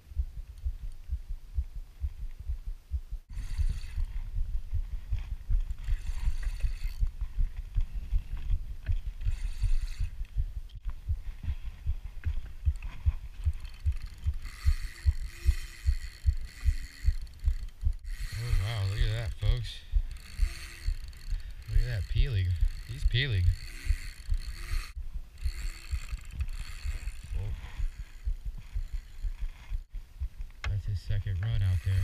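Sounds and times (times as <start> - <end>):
spinning reel cranking: 3.3 - 4.3, 5.6 - 7.2, 8.2 - 10.3, 12.7 - 29.8, 31.4 - 32.0
reel drag buzzing: 3.3 - 4.5, 5.1 - 10.4, 12.6 - 29.9, 31.4 - 32.0.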